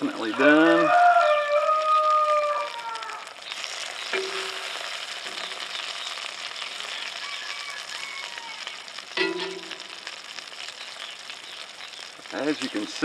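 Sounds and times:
meat sizzling in a skillet: 0.0s - 13.0s
metal spatula clinking on pan: 9.2s - 9.8s.

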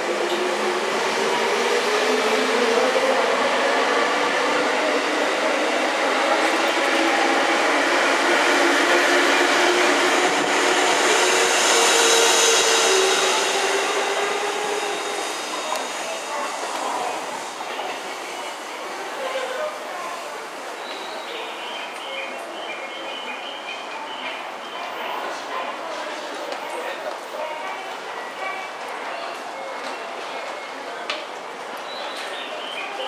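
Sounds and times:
train wheels running: 0.0s - 19.2s.

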